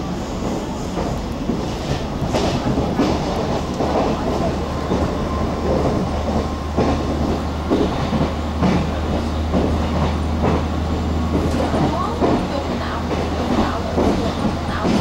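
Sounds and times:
train interior hum: 0.0 - 15.0.

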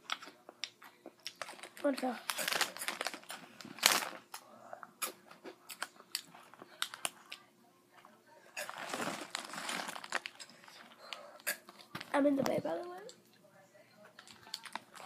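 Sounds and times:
snack bag crinkling: 0.1 - 7.4, 8.6 - 12.2, 14.2 - 15.0.

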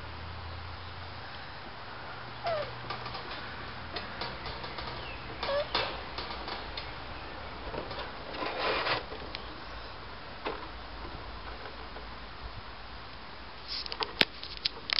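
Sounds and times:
puppy squeak: 2.4 - 2.8, 5.4 - 5.7.

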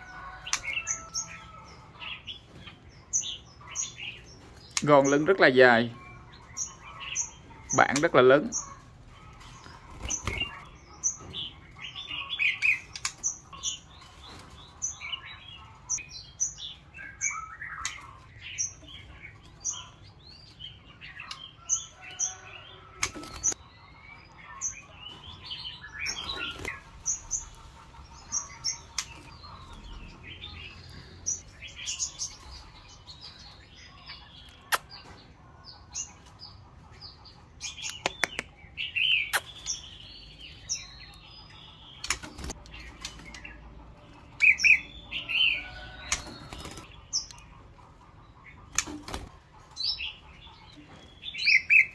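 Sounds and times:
bird chirping and singing: 0.0 - 51.9
wings fluttering: 9.3 - 10.7, 46.1 - 46.9, 48.7 - 49.4
sharp clicks in cage: 12.9 - 13.2, 37.8 - 38.6, 42.0 - 43.4, 48.7 - 49.3.

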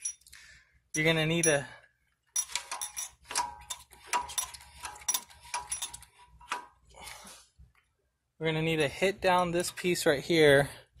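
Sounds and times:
metal tools clinking on metal: 0.0 - 0.3, 1.0 - 1.8, 2.4 - 6.2.

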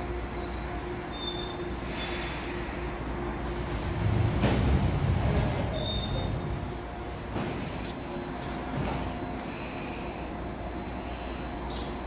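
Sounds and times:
low rumble of train stopping: 0.0 - 12.0
train running tone: 0.0 - 12.0
wheel squeals: 5.6 - 6.4.

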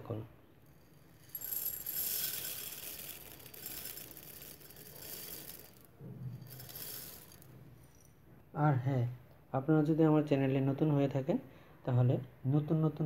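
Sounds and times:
puffed rice rattling into glass bowl: 0.6 - 8.1.

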